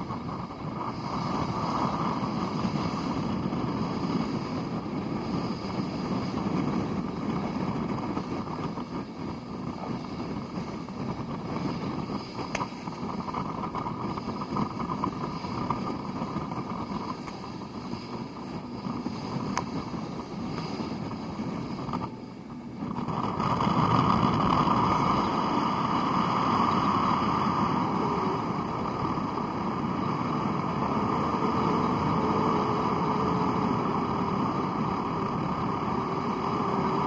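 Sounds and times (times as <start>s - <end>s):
wind and water rushing: 0.0s - 37.0s
wind buffeting microphone: 0.0s - 37.0s
faint clicks: 12.4s - 19.8s.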